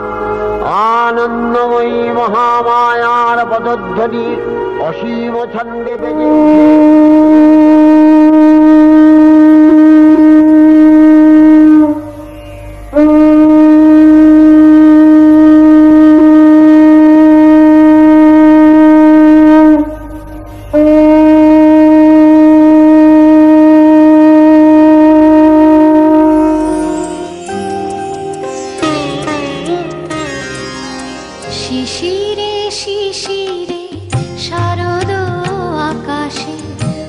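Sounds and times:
conch shell blasts: 6.2 - 12.3, 12.9 - 27.8.

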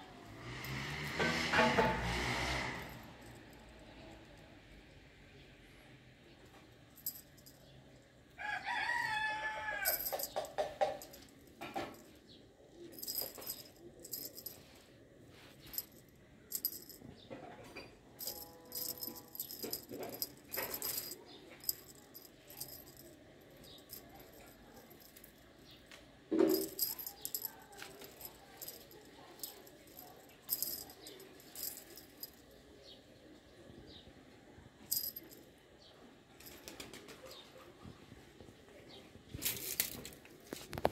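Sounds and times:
small bell jingling: 7.0 - 7.7, 9.8 - 12.2, 12.8 - 14.8, 15.4 - 17.1, 18.2 - 25.5, 26.4 - 32.4, 34.9 - 35.4.

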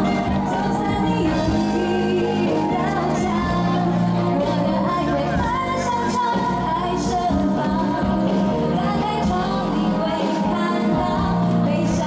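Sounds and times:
pop band backing: 0.0 - 12.0
woman singing into microphone: 0.0 - 12.0.

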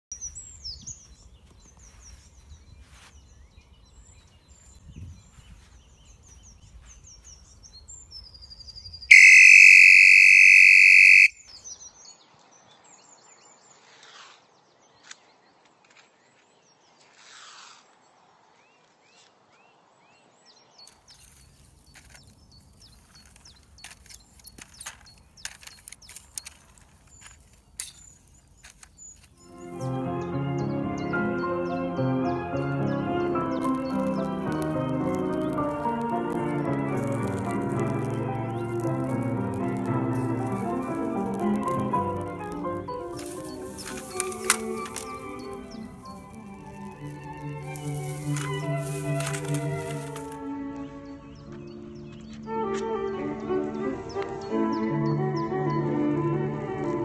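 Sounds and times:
low rustle of wind: 0.1 - 9.2, 11.2 - 30.3, 32.4 - 57.0
birds singing: 0.1 - 17.0, 18.5 - 55.9
phone handling rustle and clicks: 21.0 - 29.4, 42.5 - 45.6, 47.7 - 50.4.

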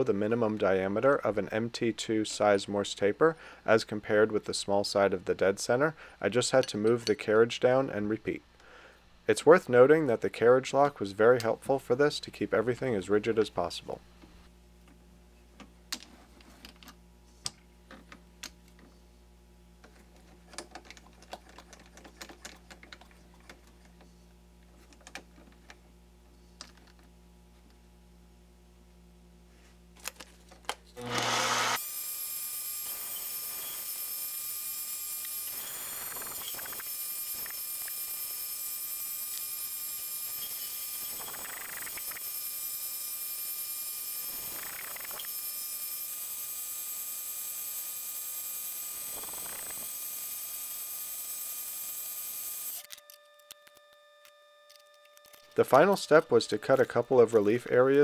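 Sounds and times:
lathe running with high whine: 31.0 - 52.8.

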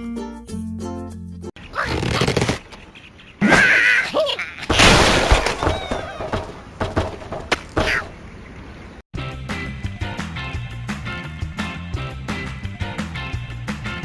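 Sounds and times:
cartoon bird cry: 3.0 - 4.7, 5.6 - 6.3, 7.8 - 8.2
crash of wood and glass breaking: 4.7 - 7.6.

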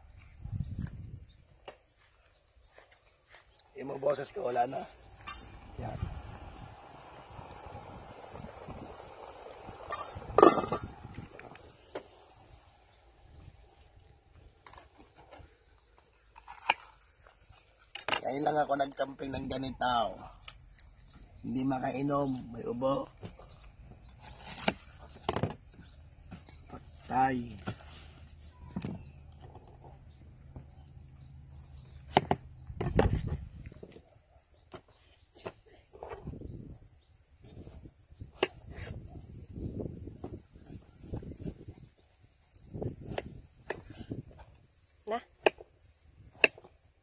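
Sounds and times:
pot lid clattering: 9.9 - 11.0.

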